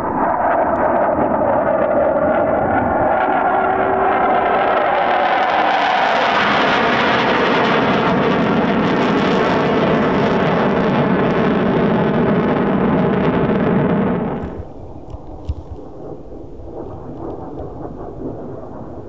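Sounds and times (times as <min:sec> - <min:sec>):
jet engine noise: 0:00.0 - 0:19.0.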